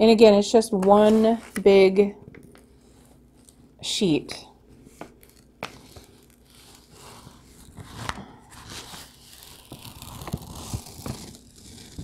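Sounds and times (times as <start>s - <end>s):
paper rustling and crinkling: 4.8s - 12.0s
sharp paper crackle: 5.1s - 12.0s.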